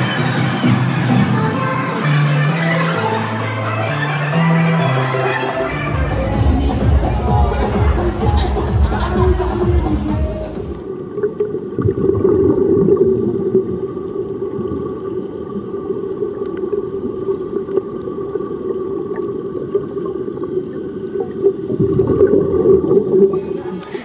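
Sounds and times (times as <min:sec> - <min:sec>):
underwater bubbling: 0:05.4 - 0:24.0.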